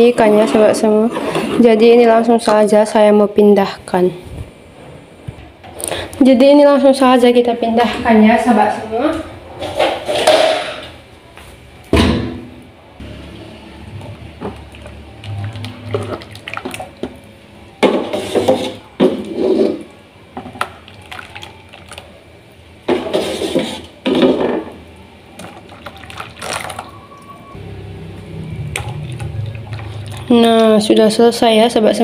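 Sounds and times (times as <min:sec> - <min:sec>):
liquid pouring into plastic mould: 0:25.4 - 0:26.9.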